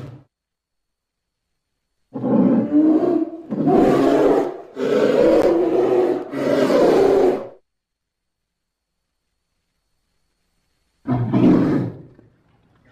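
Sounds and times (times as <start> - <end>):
growling creature roars: 2.2 - 7.6, 11.1 - 12.1.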